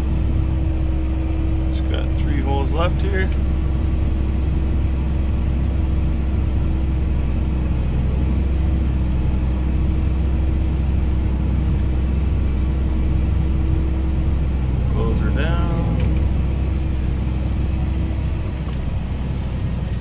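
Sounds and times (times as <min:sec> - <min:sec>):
tractor engine droning: 0:00.0 - 0:20.0.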